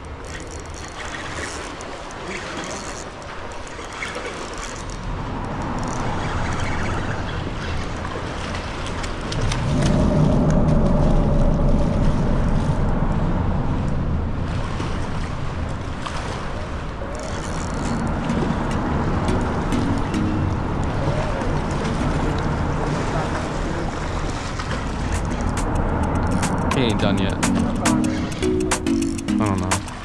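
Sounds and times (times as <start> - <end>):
river water: 0.0 - 30.0
wind noise on microphone: 9.2 - 16.0
low rumble: 9.3 - 15.7, 17.8 - 28.4
fish thrashing and splashing: 21.0 - 26.8.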